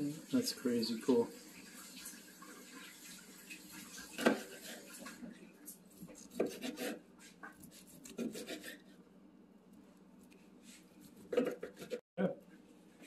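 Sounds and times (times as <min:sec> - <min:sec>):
knife scraping on cutting board: 0:04.1 - 0:08.9, 0:10.6 - 0:12.0
knife sawing through meat crust: 0:04.2 - 0:05.1, 0:06.1 - 0:07.0, 0:07.6 - 0:08.9.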